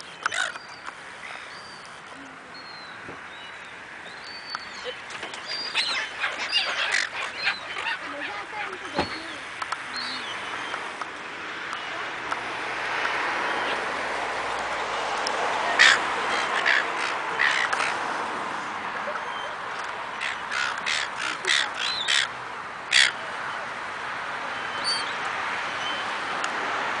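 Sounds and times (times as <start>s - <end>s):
gulls calling: 0.0s - 2.0s, 3.5s - 12.2s, 15.5s - 18.1s, 19.0s - 23.8s.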